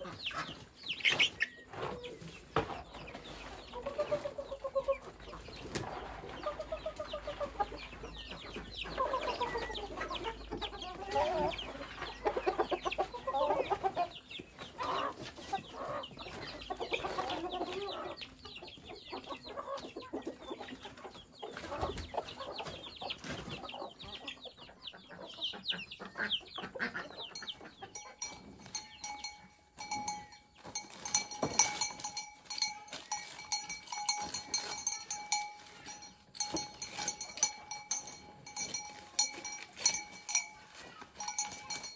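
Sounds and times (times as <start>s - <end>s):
chickens clucking: 0.0s - 41.9s
metallic clinks with bell-like ring: 27.4s - 41.9s.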